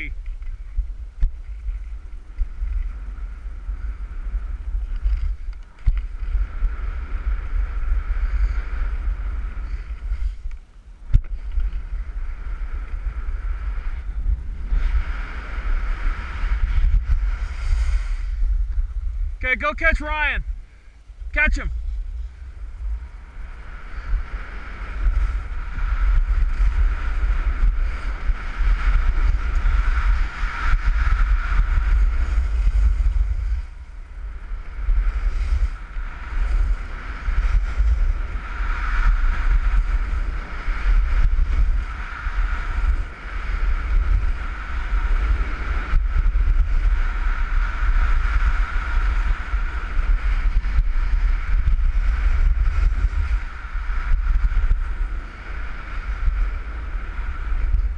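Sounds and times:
wind noise on microphone: 0.0 - 57.9.

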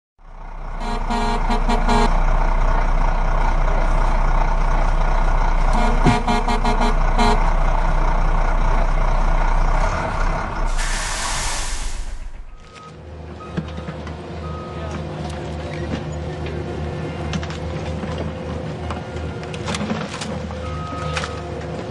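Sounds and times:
truck engine running: 0.2 - 19.7
short horn toots: 0.8 - 2.2, 5.7 - 7.5
air brake hiss: 10.7 - 12.4.

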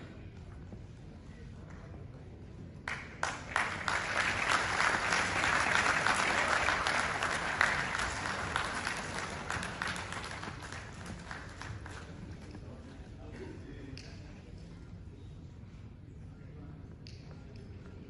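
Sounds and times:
audience applauding: 2.9 - 12.2.

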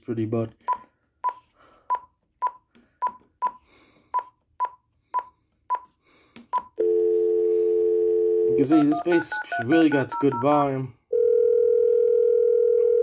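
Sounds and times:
phone dial tone: 6.6 - 10.5, 11.1 - 13.0
phone keypad beeps: 8.7 - 10.5.

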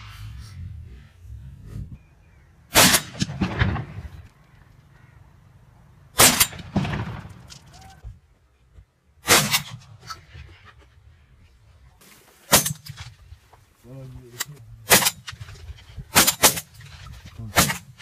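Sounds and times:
gunshots: 2.7 - 4.3, 6.2 - 7.5, 9.2 - 9.8, 14.8 - 15.3, 16.1 - 16.8, 17.5 - 18.0.

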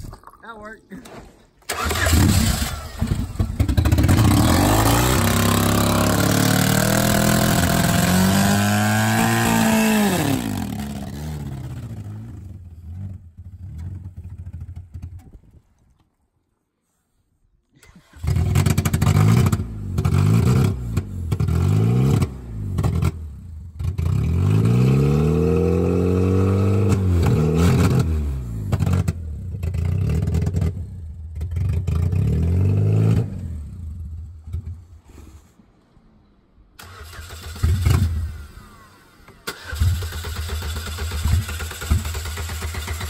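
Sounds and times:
car engine revving: 1.7 - 13.6.

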